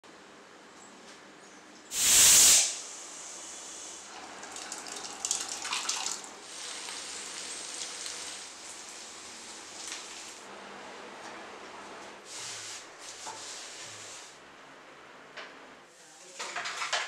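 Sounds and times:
thick food pouring and splashing: 4.1 - 10.4
vegetables sizzling in a pan: 6.4 - 10.5.

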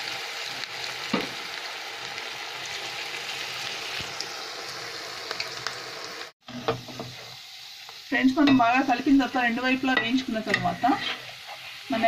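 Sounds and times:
oil sizzling while deep-frying: 0.0 - 12.0.

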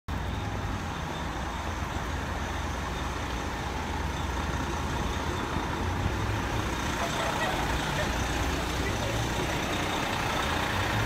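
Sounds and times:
bus diesel engine rumbling: 0.1 - 11.0
street traffic: 0.1 - 11.0.

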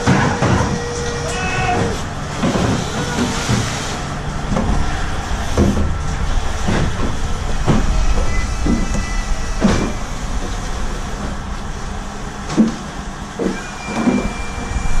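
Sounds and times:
hoist machinery rumble: 0.0 - 15.0
thin mechanical whine: 0.0 - 15.0
crates knocking: 4.4 - 10.0.

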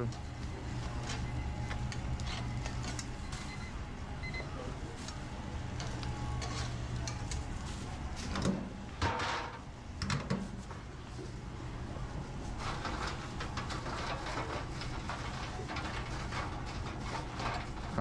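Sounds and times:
kitchen equipment hum: 0.0 - 18.0
metal clatters and scrapes: 5.8 - 10.5, 12.4 - 18.0.

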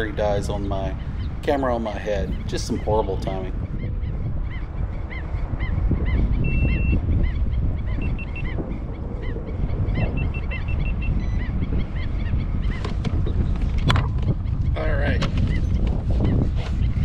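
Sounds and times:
bird calling: 0.0 - 13.4
wind noise on microphone: 0.0 - 17.0
camera electronic beeps: 6.5 - 7.0.

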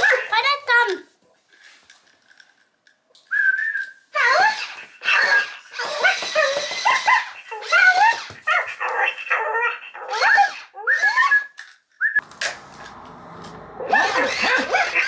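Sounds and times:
toy puppy yips and whimpers: 4.1 - 11.6, 13.9 - 15.0.

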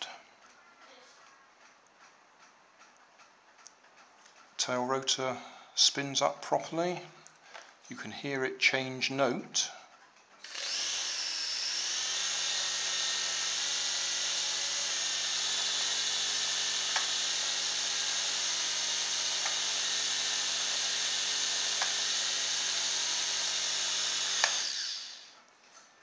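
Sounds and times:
faint clicks: 0.4 - 4.6
toy helicopter motors whirring: 10.4 - 25.4.

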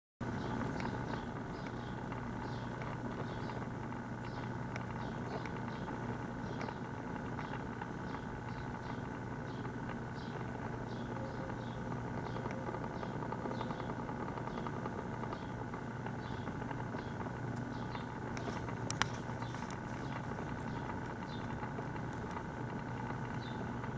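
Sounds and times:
small motor humming and ticking: 0.2 - 23.9.

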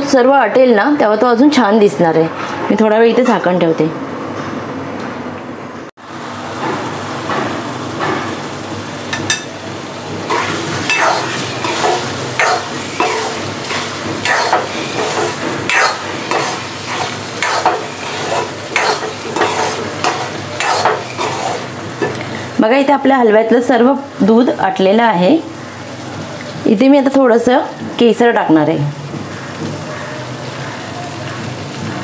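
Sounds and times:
halwa sizzling in a pan: 6.0 - 32.0
steel spoon scraping pan: 10.3 - 22.2.

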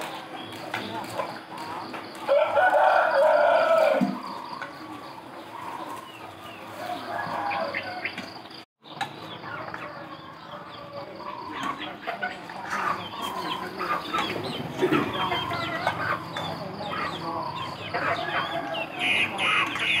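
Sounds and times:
chickens clucking: 0.0 - 20.0
rooster crowing: 2.3 - 4.3, 6.7 - 8.3, 18.0 - 19.8.

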